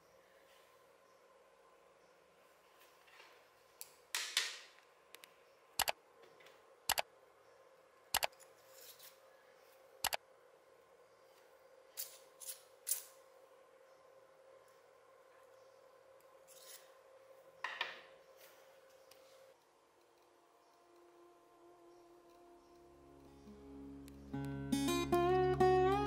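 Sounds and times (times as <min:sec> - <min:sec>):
sharp clicks: 0:05.1 - 0:06.0, 0:06.9 - 0:07.1, 0:08.1 - 0:08.3, 0:10.0 - 0:10.2.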